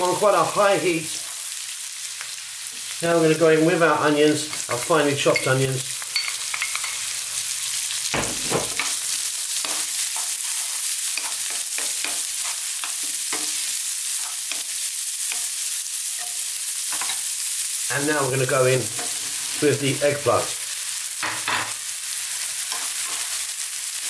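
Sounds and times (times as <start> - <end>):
onions sizzling in oil: 0.0 - 24.0
spatula scraping a pan: 8.4 - 15.6, 22.4 - 23.4.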